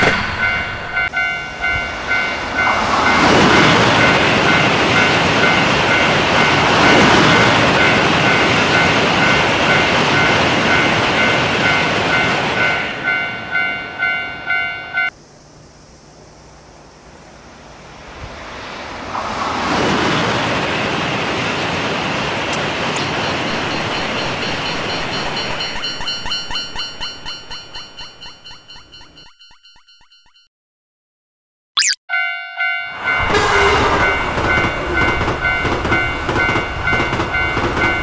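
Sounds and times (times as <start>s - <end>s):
train rushing past: 0.0s - 13.7s, 16.4s - 27.0s, 33.0s - 38.0s
railroad crossing bell clanging: 0.0s - 15.2s, 22.6s - 30.5s, 32.1s - 38.0s.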